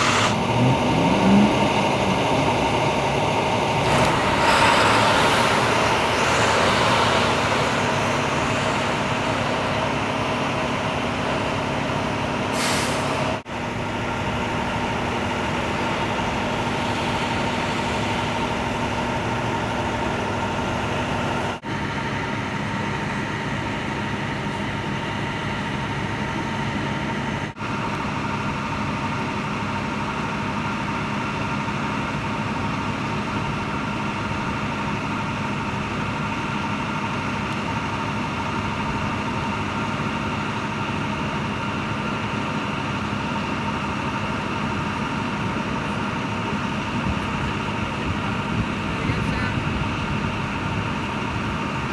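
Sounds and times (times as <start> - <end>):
short hiss: 0.0 - 0.4, 12.6 - 13.1
truck engines idling: 0.0 - 51.9.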